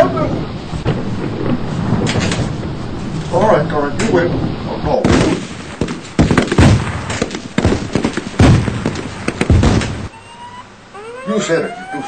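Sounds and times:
low rumble: 0:00.0 - 0:05.8
loud bangs and crashes: 0:04.0 - 0:10.1
faint rising whistle: 0:10.1 - 0:12.0.

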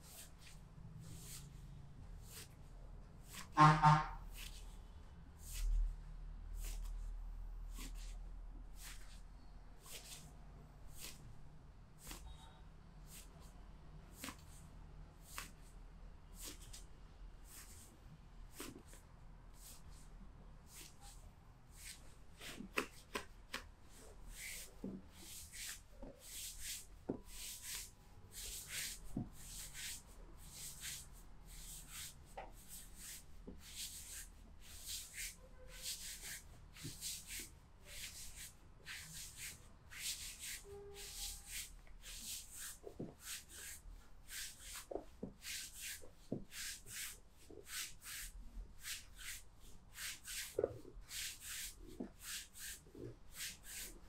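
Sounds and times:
hands rubbing over skin: 0:10.9 - 0:11.2, 0:24.3 - 0:54.0.

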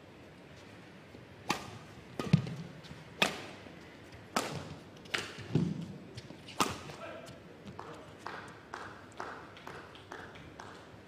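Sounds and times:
rackets striking shuttlecock: 0:01.4 - 0:03.6, 0:04.3 - 0:05.8.

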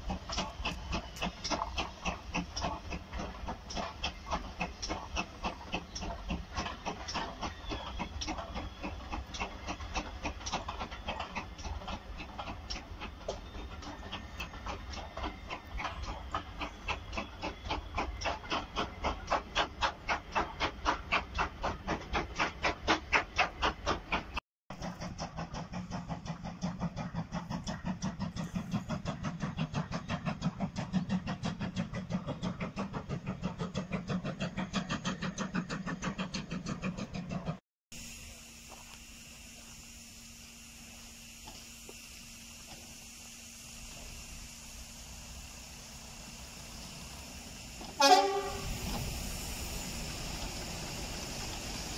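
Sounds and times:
steam locomotive exhaust beats: 0:00.0 - 0:51.9.

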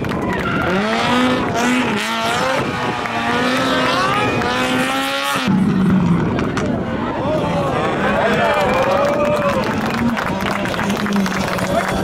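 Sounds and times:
rally car engine accelerating: 0:00.1 - 0:08.6.

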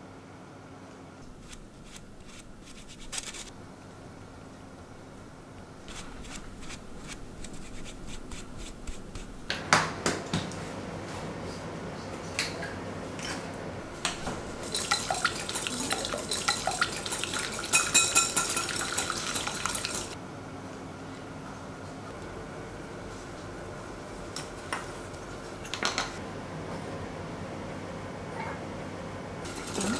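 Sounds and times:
whisk clinking in glass bowl: 0:14.6 - 0:20.1.

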